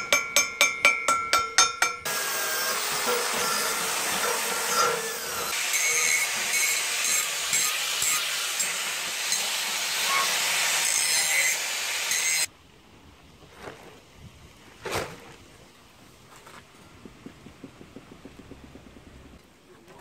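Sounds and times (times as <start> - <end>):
wire brush scraping steel: 2.5 - 12.5.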